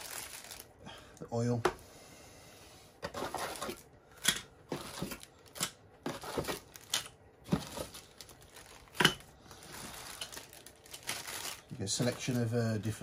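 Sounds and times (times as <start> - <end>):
plastic packaging crinkling: 0.0 - 0.8, 4.7 - 13.0.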